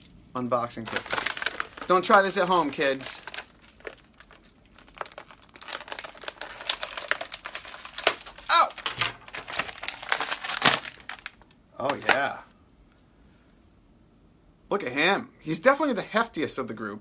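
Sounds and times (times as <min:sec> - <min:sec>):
plastic packaging crinkling: 0:00.5 - 0:12.4.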